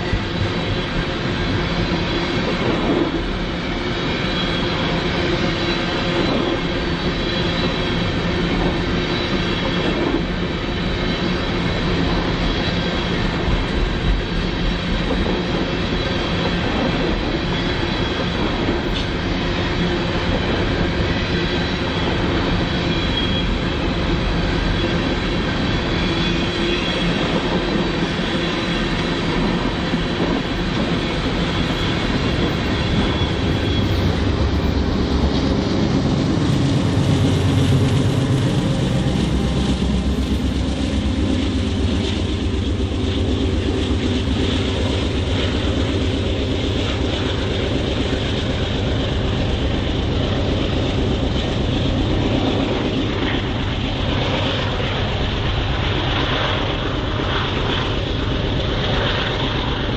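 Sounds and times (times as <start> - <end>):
train wheels rumbling on rail: 0.0 - 59.9
high wheel squeal: 21.2 - 35.7.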